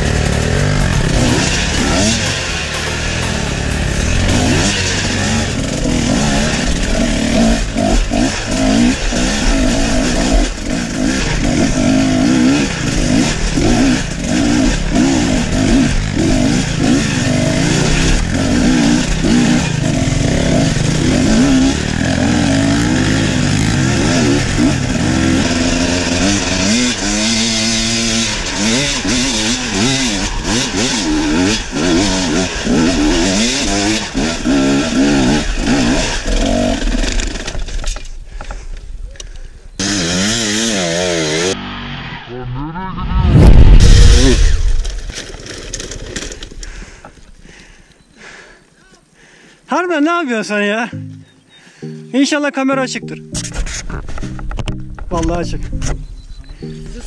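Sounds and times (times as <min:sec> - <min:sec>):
motorcycle engine revving: 0:00.0 - 0:38.1, 0:39.7 - 0:46.8
chassis knocking over rocks: 0:43.3 - 0:47.4.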